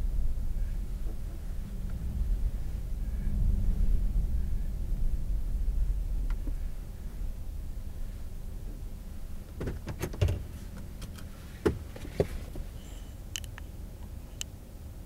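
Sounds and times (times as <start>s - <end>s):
car engine and road rumble: 0.0s - 15.0s
clicks and knocks inside car: 9.5s - 12.7s.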